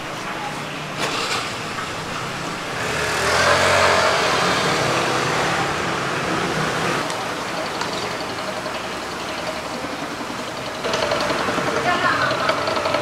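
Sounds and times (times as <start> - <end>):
street background noise: 0.0 - 13.0
vehicle passing: 2.3 - 7.0.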